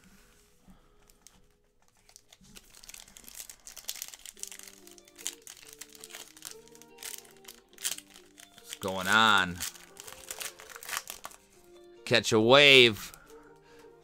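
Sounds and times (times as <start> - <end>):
background music with held notes: 0.0 - 14.0
wrapper crinkling and tearing: 1.0 - 11.7.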